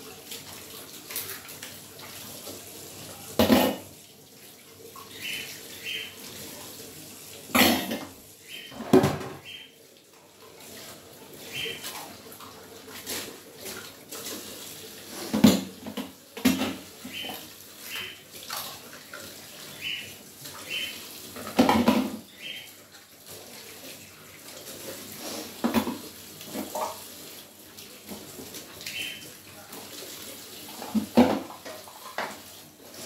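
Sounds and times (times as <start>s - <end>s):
tap running into sink: 3.4s - 3.9s, 8.7s - 9.5s, 15.3s - 17.4s, 21.4s - 22.3s, 25.6s - 27.0s, 30.8s - 32.4s
dishes being scrubbed: 12.8s - 22.5s, 24.7s - 27.3s, 30.7s - 33.0s.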